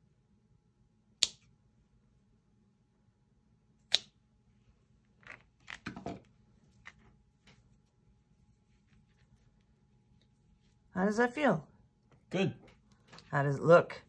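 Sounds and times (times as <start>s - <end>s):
scissors snipping cord: 3.8s - 4.2s.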